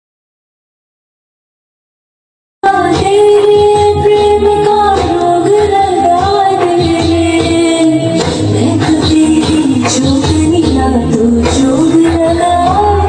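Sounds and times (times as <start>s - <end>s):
backing music: 2.6s - 13.0s.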